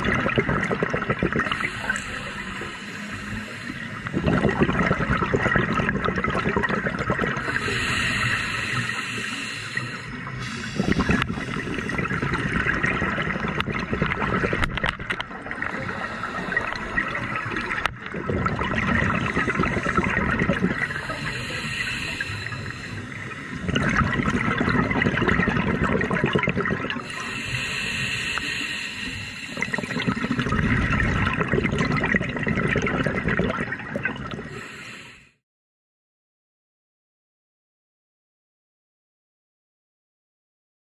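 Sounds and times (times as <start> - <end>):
regulator hiss on inhale: 1.5 - 4.1, 7.4 - 12.2, 15.6 - 17.3, 20.8 - 23.2, 27.0 - 30.0, 34.5 - 35.4.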